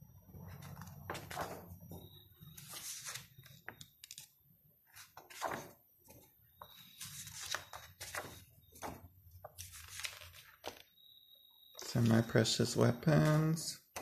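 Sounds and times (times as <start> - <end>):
paper pages turning: 0.4 - 10.9.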